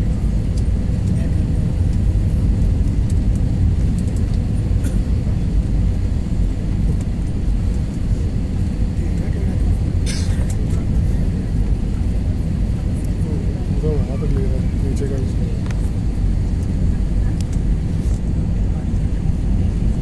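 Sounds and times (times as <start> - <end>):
jet engine and airflow rumble: 0.0 - 20.0.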